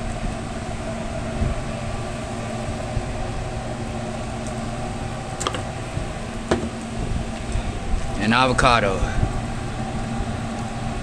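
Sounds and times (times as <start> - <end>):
kitchen machinery humming: 0.0 - 11.0
low knock: 6.5 - 6.8.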